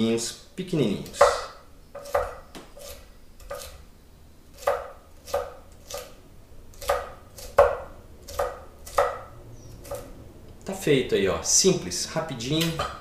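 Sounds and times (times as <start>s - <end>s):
knife chopping on wooden board: 1.0s - 3.8s, 4.6s - 10.1s.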